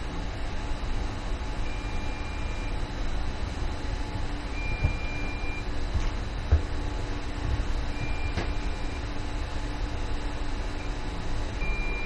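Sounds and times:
steady low hum: 0:00.0 - 0:12.0
control panel buzzer beeping: 0:11.6 - 0:12.0.

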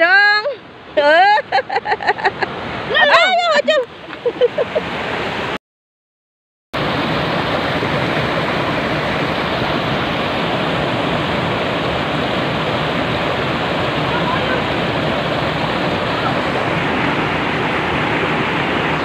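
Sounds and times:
waterfall rushing over rocks: 0:06.8 - 0:19.0.

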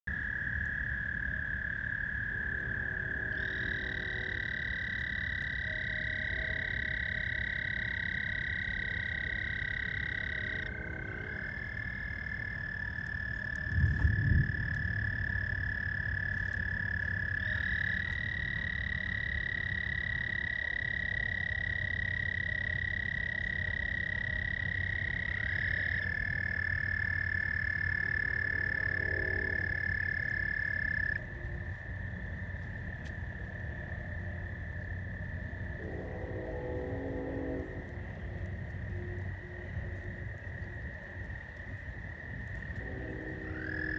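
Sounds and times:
frogs trilling: 0:00.1 - 0:43.9
low background rumble: 0:00.1 - 0:43.9.

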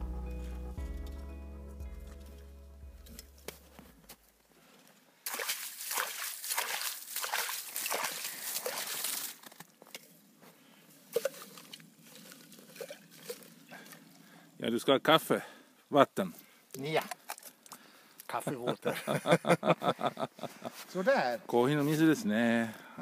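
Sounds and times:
water splashing and gurgling: 0:05.2 - 0:09.4, 0:11.2 - 0:14.0
slush and ice sloshing and scraping: 0:05.3 - 0:09.6, 0:11.1 - 0:14.0.

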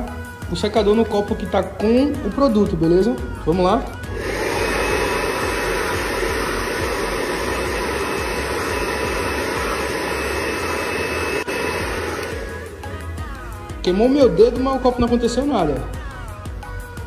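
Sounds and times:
hair dryer blowing: 0:02.9 - 0:15.7.

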